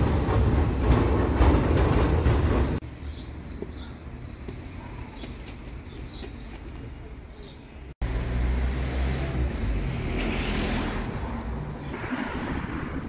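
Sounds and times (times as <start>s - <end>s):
passing vehicles rumble: 7.8s - 13.0s.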